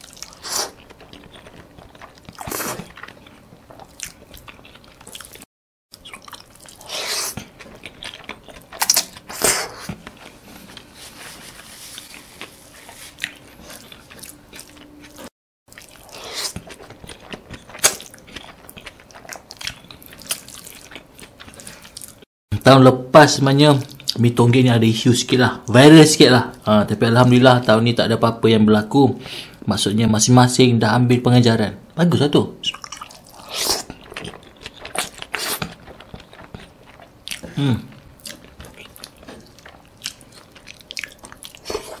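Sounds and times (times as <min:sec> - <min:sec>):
wet chewing: 0:00.0 - 0:22.3, 0:32.6 - 0:42.0.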